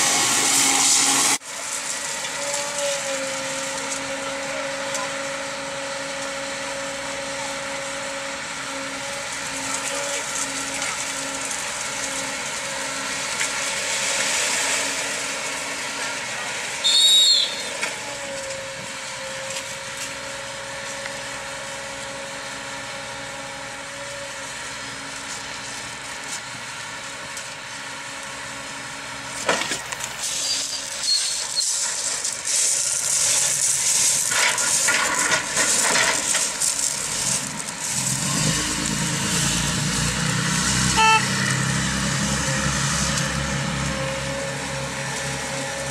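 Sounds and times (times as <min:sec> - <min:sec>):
diesel engines droning: 0:00.0 - 0:45.9
brief high-pitched sound: 0:40.9 - 0:41.6.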